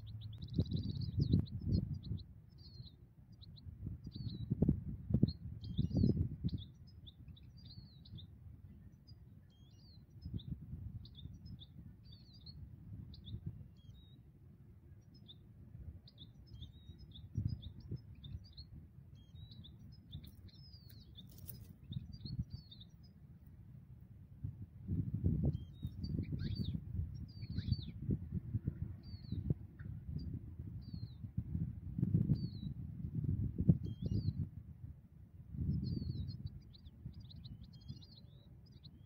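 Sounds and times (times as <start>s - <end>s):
goldfinch singing: 0.0s - 4.6s, 5.2s - 14.2s, 14.8s - 23.5s, 25.4s - 28.0s, 28.8s - 31.3s, 32.3s - 32.8s, 33.8s - 34.4s, 35.7s - 39.0s
wind rumbling on microphone: 0.0s - 39.0s.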